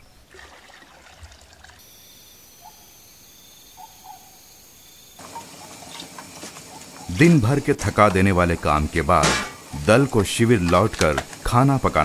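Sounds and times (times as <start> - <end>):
water pouring into bucket: 0.3 - 1.8
insect trilling: 1.8 - 12.0.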